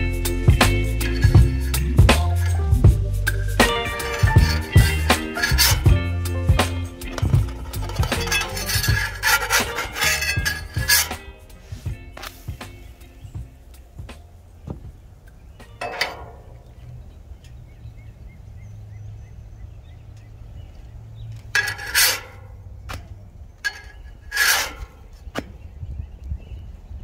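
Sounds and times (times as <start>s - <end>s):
steady low rumble: 0.0s - 15.6s
metal spatula scraping griddle: 0.4s - 12.8s, 21.6s - 22.5s, 23.7s - 25.0s.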